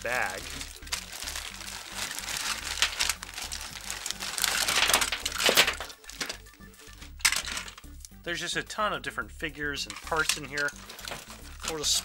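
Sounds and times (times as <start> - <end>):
plastic bag crinkling: 0.0 - 7.8, 10.0 - 12.0
plastic figures tumbling onto table: 4.6 - 6.4.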